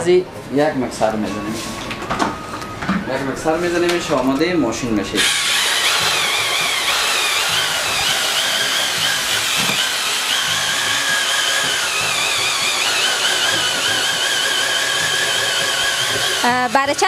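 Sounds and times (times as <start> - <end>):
electric drill motor whine: 5.2 - 17.0.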